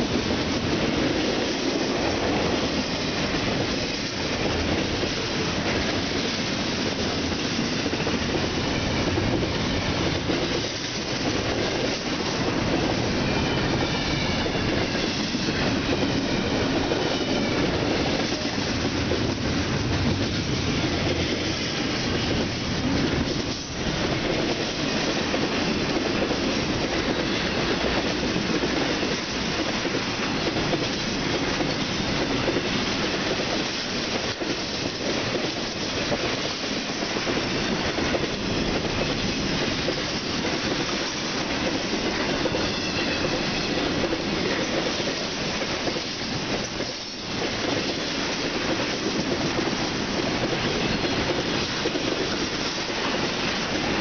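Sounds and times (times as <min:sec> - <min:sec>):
freight train rolling past: 0:00.0 - 0:54.0.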